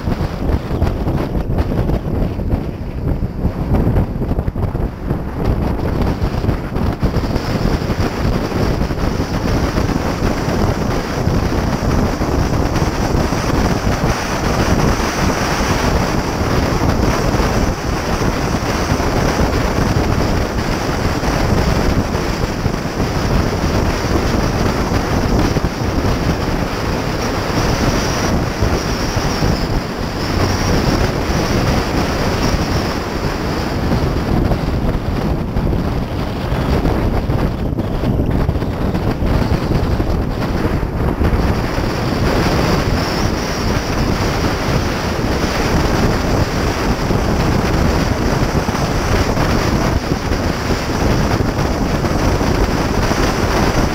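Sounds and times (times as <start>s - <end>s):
car running noise: 0.0s - 53.9s
wind buffeting the microphone: 0.0s - 53.9s.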